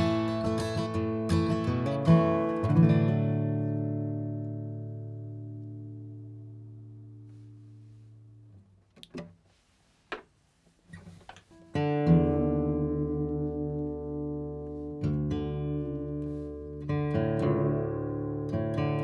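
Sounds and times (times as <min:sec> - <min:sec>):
acoustic guitar chords strummed: 0:00.0 - 0:08.4, 0:11.5 - 0:19.0
faint knocks and rustles: 0:08.9 - 0:11.7.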